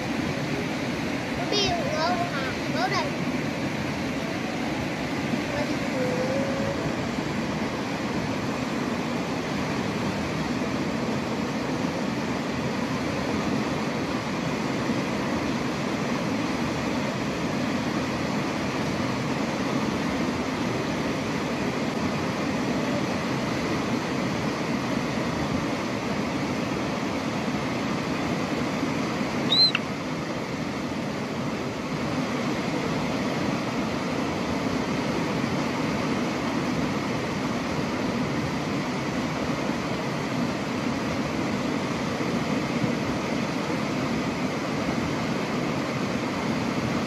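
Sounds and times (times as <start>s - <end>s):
steady rushing noise: 0.0s - 47.0s
high-pitched squeak: 29.5s - 29.8s.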